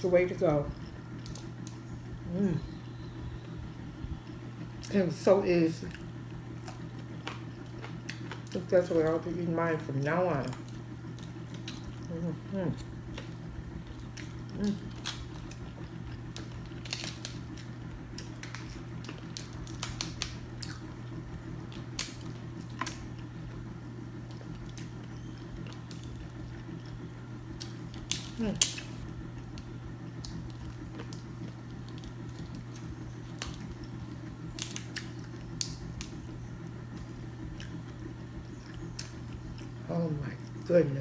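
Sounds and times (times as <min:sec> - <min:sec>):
steady low hum: 0:00.0 - 0:41.0
seafood shells cracking: 0:13.0 - 0:20.9, 0:21.6 - 0:23.3, 0:24.3 - 0:36.2.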